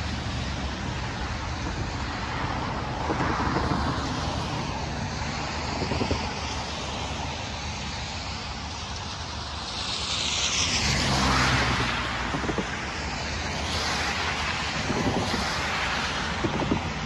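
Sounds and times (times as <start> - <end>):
tyres hissing on wet road: 0.0 - 17.0
car engine passing: 10.0 - 17.0.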